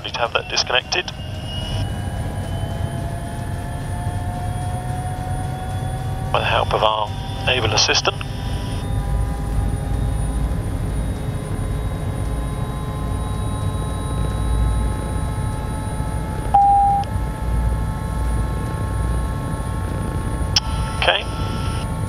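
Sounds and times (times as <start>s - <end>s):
helicopter engine idling: 0.0s - 22.0s
brief beep: 16.6s - 17.1s.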